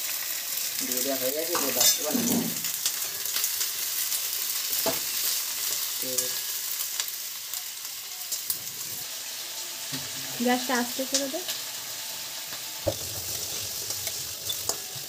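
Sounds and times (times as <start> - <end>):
vegetables sizzling in hot oil: 0.0 - 15.0
steel spatula scraping a pan: 12.9 - 15.0.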